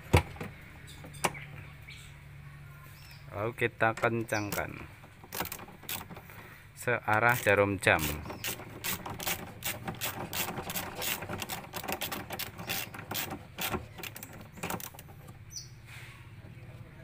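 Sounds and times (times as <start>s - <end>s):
socket ratchet clicking: 5.3s - 6.2s, 7.1s - 15.1s.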